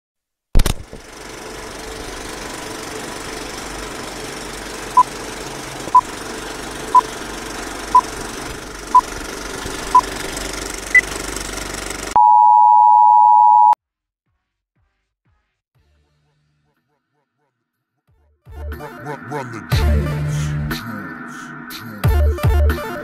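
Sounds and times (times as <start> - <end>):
film projector clattering: 0.6 - 12.2
short beeps: 12.2 - 13.8.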